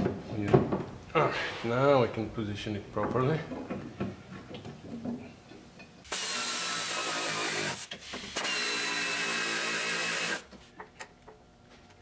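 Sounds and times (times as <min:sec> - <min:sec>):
power tool whine: 0:06.1 - 0:10.4.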